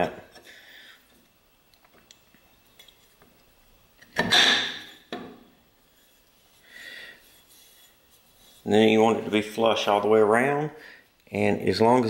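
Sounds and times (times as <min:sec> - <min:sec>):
tube scraping on metal block: 0:05.9 - 0:09.4.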